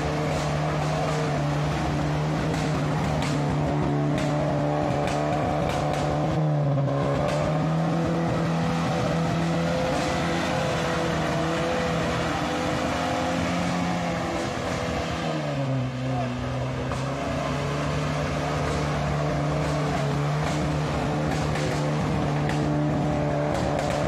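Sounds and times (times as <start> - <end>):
truck engine revving hard: 0.0 - 24.0
sharp knocks: 2.2 - 6.5.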